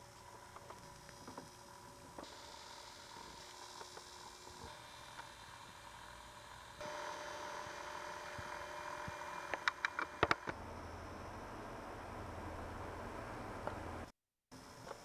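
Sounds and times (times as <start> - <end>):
electrical hum with hiss: 0.0 - 15.0
sharp clicks: 9.5 - 10.6.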